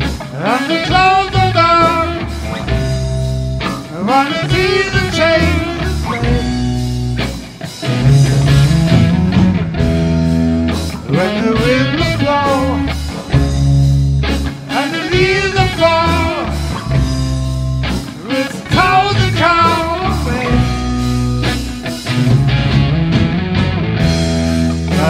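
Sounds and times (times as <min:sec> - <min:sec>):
blues-rock band playing: 0:00.0 - 0:25.0
guitar lead with bending notes: 0:00.0 - 0:25.0.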